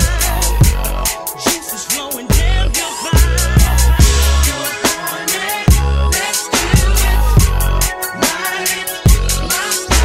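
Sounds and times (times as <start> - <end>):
deep held bass notes: 2.3 - 4.6, 5.7 - 7.9
regular drum hits: 3.2 - 5.9.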